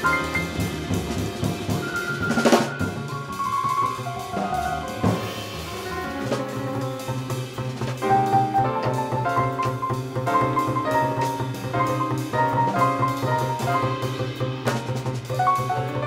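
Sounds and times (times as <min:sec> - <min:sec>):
double bass: 0:00.0 - 0:16.0
drum kit: 0:00.0 - 0:16.0
drum kit crash: 0:00.0 - 0:16.0
piano: 0:00.0 - 0:16.0.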